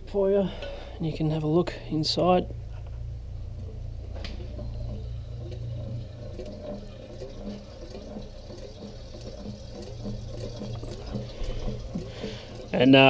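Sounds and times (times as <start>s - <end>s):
steady low hum: 0.0s - 13.0s
oil sloshing and gurgling: 3.5s - 13.0s.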